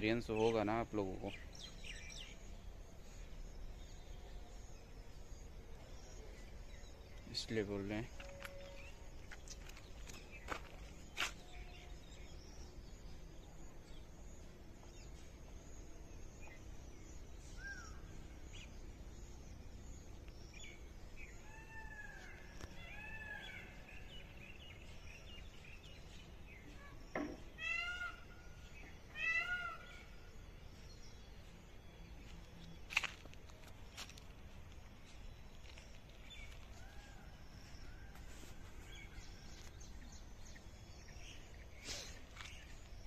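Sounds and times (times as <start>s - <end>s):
faint birdsong: 0.0s - 43.0s
peafowl calling: 27.6s - 28.4s, 29.1s - 30.1s.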